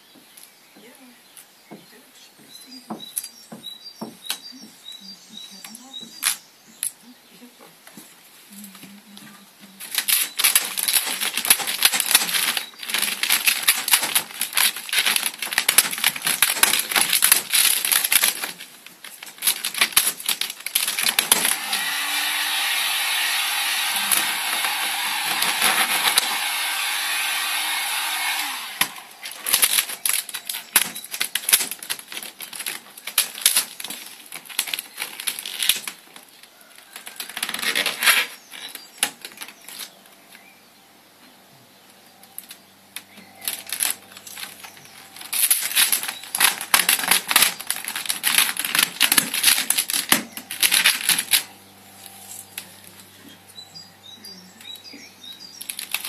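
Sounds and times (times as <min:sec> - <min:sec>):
vinyl film crackling: 0:01.9 - 0:40.4, 0:42.2 - 0:53.6, 0:54.4 - 0:56.0
heat gun motor whirring: 0:20.6 - 0:31.8.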